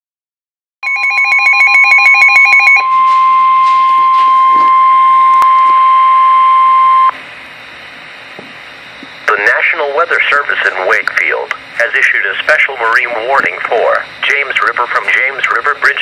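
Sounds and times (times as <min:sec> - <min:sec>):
loud steady warning tone: 0:00.8 - 0:16.0.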